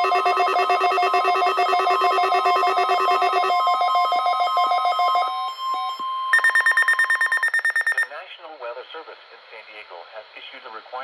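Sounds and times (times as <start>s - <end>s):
fast-pulsing electronic beeps: 0.0s - 4.0s, 6.3s - 8.1s
higher rapid beeping: 0.0s - 5.2s, 6.3s - 8.1s
steady alarm tone: 0.0s - 8.1s.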